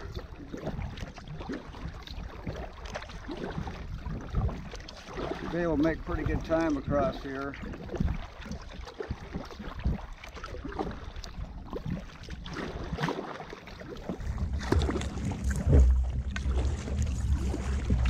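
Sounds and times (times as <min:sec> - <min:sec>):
paddle splashing in water: 0:00.0 - 0:18.0
wind buffeting microphone: 0:03.2 - 0:13.0, 0:14.0 - 0:18.0.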